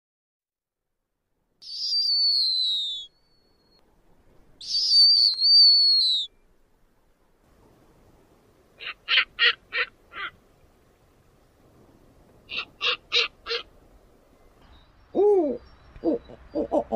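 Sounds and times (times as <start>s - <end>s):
owl screeching: 1.6s - 3.1s, 4.6s - 6.3s, 12.5s - 13.7s.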